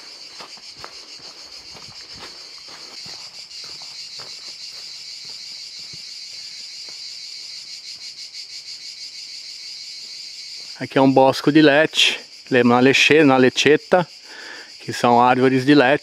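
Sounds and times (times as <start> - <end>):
footsteps on dry leaves: 0.0 - 8.1
cicadas singing: 0.0 - 16.0.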